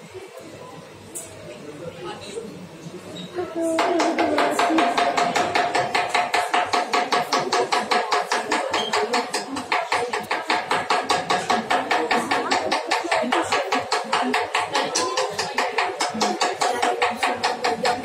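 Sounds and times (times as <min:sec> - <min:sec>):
rapid tapping on chocolate mould: 0:03.8 - 0:18.0.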